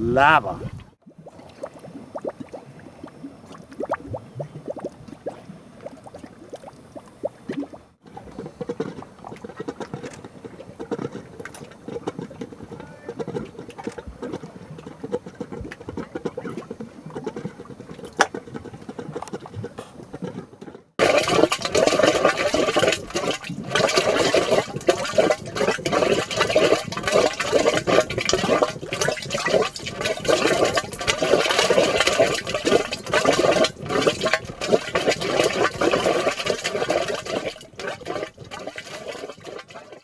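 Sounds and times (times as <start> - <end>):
mud gurgling with gas bubbles: 0.0 - 40.0.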